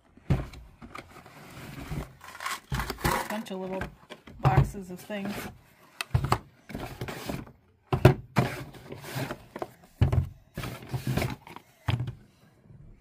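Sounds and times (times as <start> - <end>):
cardboard rustling: 0.3 - 5.6.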